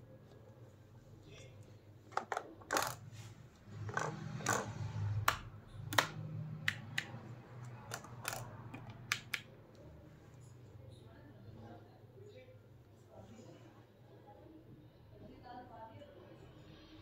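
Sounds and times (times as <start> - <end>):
plastic clicks of switches and sticks: 3.9 - 9.5.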